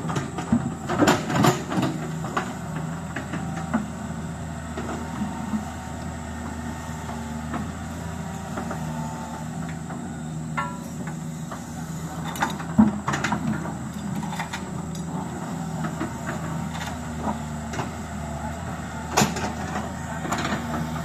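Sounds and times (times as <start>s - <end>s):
heavy diesel engine running: 0.0s - 21.0s.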